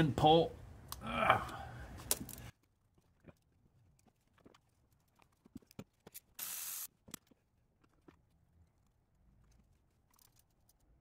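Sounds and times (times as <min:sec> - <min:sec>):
small clicks and knocks of parts: 0:02.0 - 0:06.4, 0:07.0 - 0:11.0
sharp hiss: 0:06.4 - 0:06.9.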